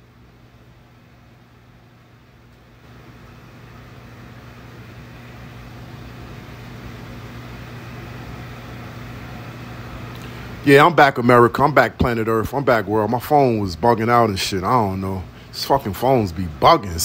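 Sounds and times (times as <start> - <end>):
air conditioner humming: 0.0 - 17.0.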